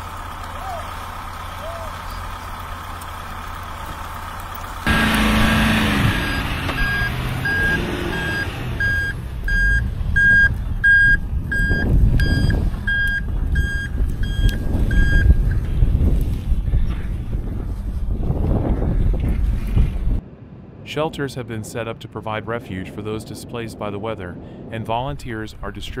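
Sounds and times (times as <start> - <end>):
van engine rumble: 0.0 - 20.8
reversing alarm beeping: 4.9 - 15.5.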